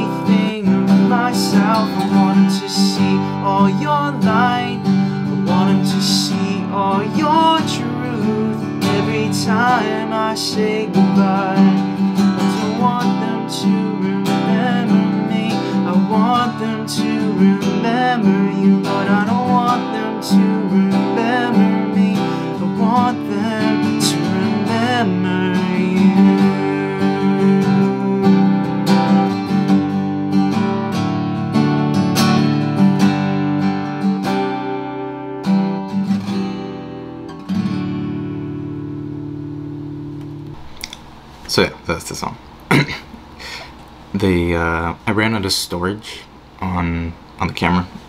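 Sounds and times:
soft wordless vocal: 0:00.0 - 0:28.6
acoustic guitar strumming: 0:00.0 - 0:41.3.

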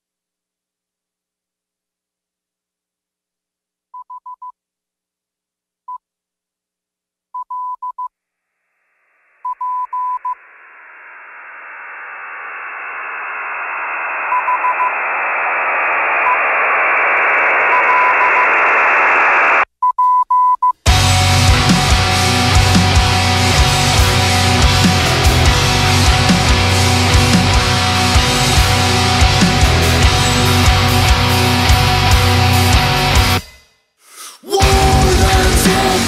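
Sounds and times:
short high beeps: 0:09.4 - 0:10.4, 0:17.7 - 0:18.5
radio static hiss: 0:10.5 - 0:19.6.

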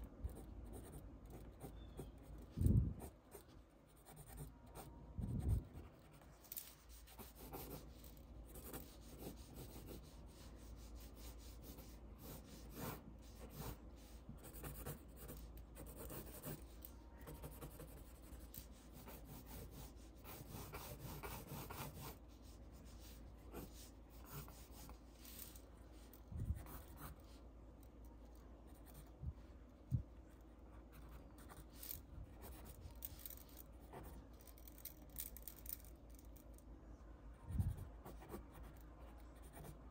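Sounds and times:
pencil scratching on paper: 0:00.3 - 0:25.6, 0:26.5 - 0:27.4, 0:39.4 - 0:39.8.

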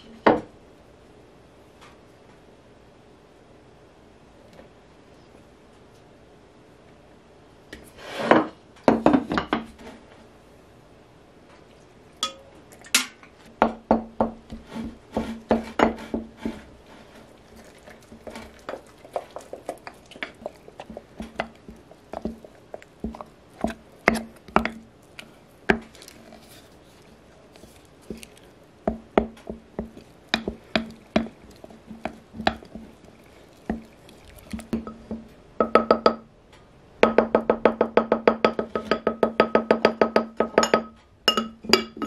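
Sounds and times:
wooden spoon knocking on glass: 0:34.8 - 0:36.2, 0:37.0 - 0:42.0.

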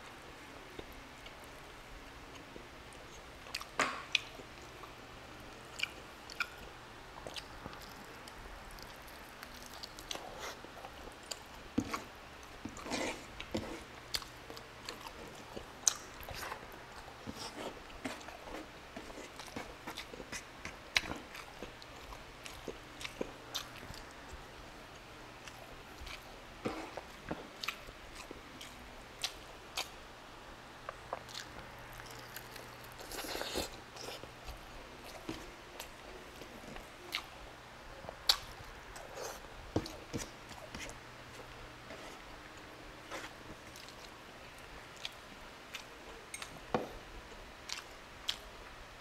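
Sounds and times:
chewing and lip smacking: 0:05.7 - 0:12.8, 0:26.9 - 0:30.0, 0:42.6 - 0:46.6, 0:47.6 - 0:48.5.

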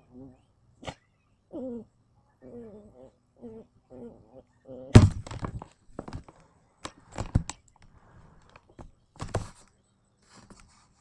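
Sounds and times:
knocks: 0:05.0 - 0:06.3.

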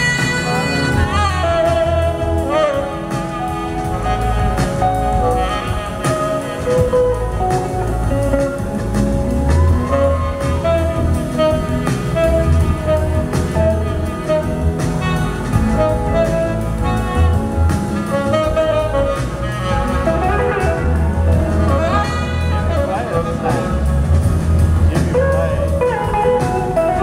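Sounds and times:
live soul blues band: 0:00.0 - 0:27.0.

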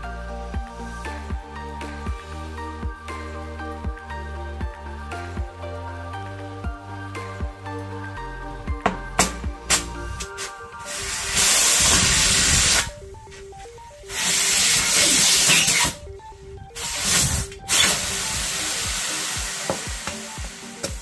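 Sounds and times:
background music: 0:00.0 - 0:21.0
hissing spray bursts: 0:10.4 - 0:13.0, 0:14.1 - 0:16.0, 0:16.8 - 0:21.0.

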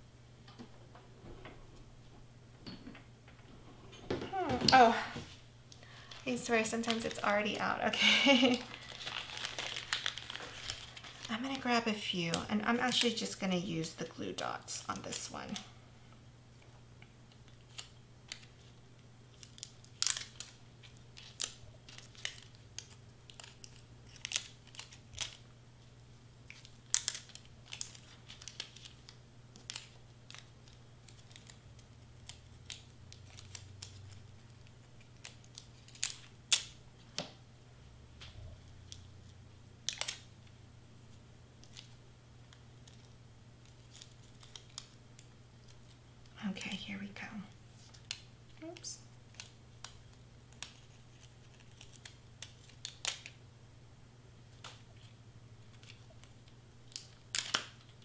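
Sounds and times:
plastic packaging crinkling: 0:05.8 - 0:13.4, 0:19.3 - 0:25.4, 0:26.5 - 0:36.8, 0:42.8 - 0:46.0, 0:47.8 - 0:53.4.

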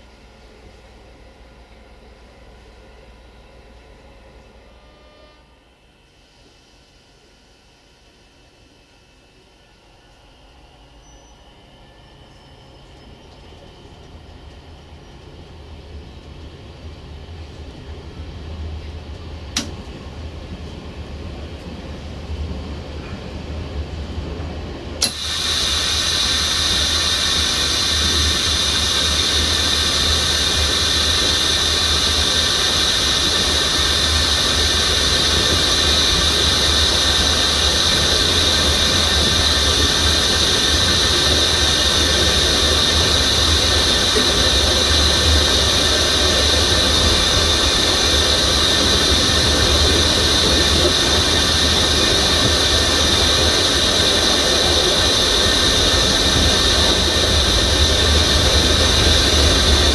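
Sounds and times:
diesel locomotive running: 0:00.0 - 0:59.9.

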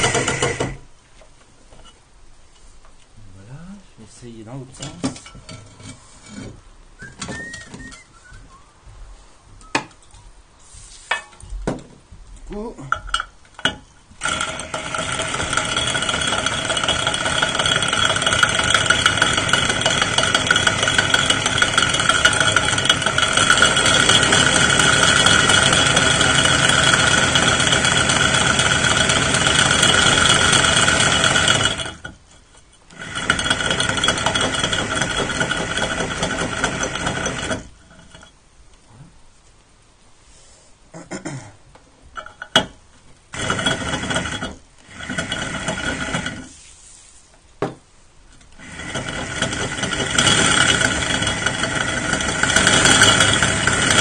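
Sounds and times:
electric drill grinding ceramic: 0:00.0 - 0:00.9, 0:14.2 - 0:32.2, 0:32.9 - 0:38.3, 0:43.3 - 0:46.5, 0:48.5 - 0:54.0.

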